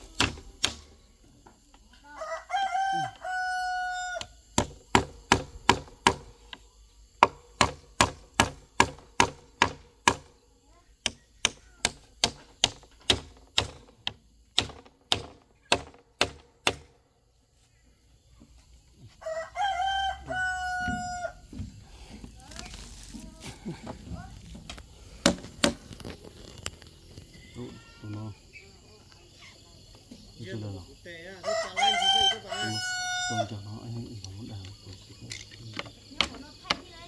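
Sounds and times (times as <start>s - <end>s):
rooster crowing: 2.0s - 4.4s, 19.1s - 21.6s, 31.4s - 33.6s
hammer driving nails into wood: 11.4s - 16.9s, 25.2s - 25.8s.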